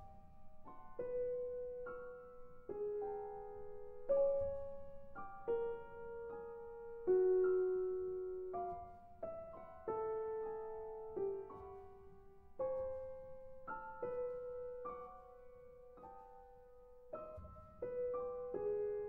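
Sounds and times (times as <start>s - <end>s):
slow solo piano chords: 0.0s - 19.0s.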